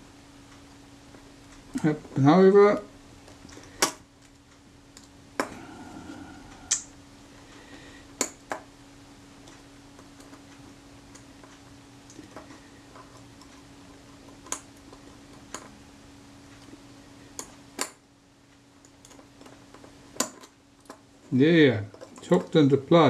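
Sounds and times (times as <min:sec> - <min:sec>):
low hum: 0:00.0 - 0:08.1.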